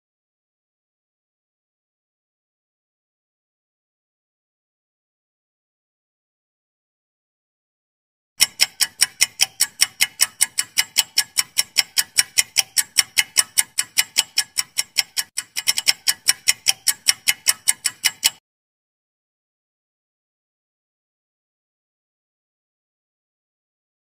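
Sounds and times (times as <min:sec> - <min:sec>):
clock ticking: 0:08.4 - 0:18.4.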